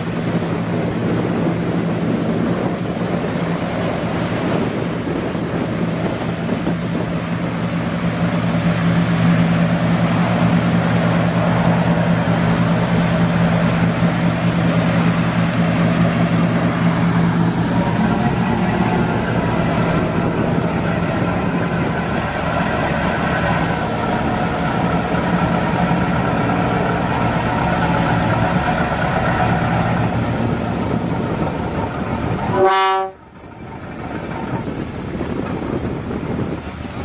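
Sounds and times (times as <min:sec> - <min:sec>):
boat engine running: 0:00.0 - 0:37.0
churning water: 0:00.0 - 0:37.0
loud horn-like tone: 0:32.5 - 0:33.2.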